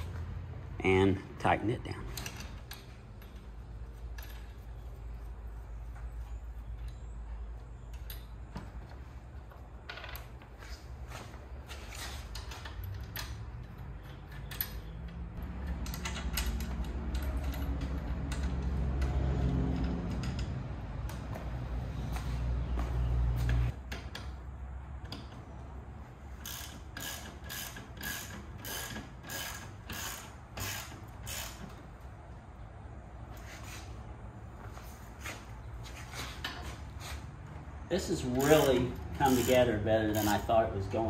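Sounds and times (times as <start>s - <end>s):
ratchet wrench clicking: 26.4s - 31.8s, 38.2s - 40.7s.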